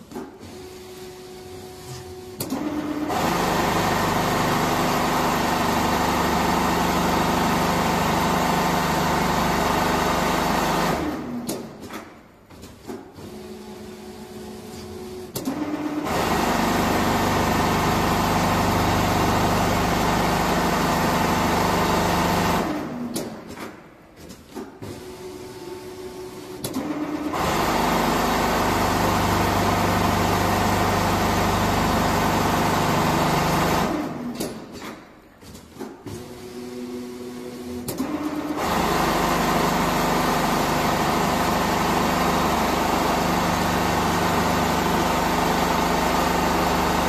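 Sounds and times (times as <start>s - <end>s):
sewing machine stitching: 12.6s - 23.6s, 24.6s - 34.9s, 35.8s - 47.0s.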